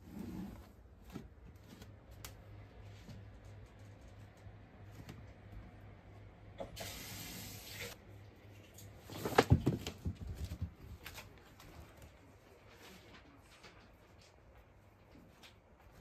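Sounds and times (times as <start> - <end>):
knocks and thumps among clutter: 9.3 - 10.9.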